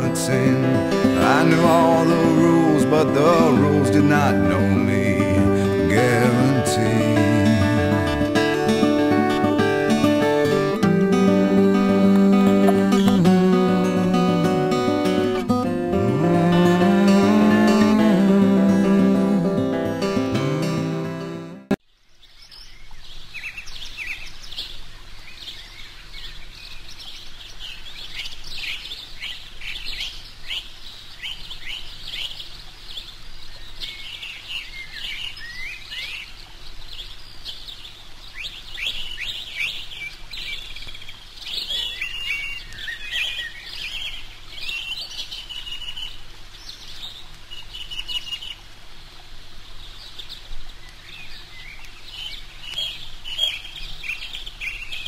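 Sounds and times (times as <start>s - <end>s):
small birds chirping: 0.0s - 21.1s, 21.9s - 48.7s, 49.6s - 55.0s.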